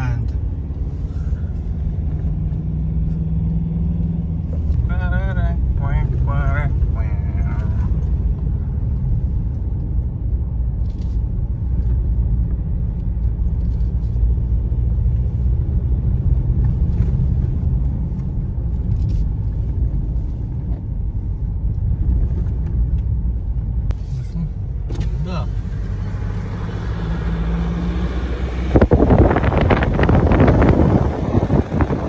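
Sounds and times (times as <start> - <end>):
vehicle cabin rumble on dirt trail: 0.0 - 32.0.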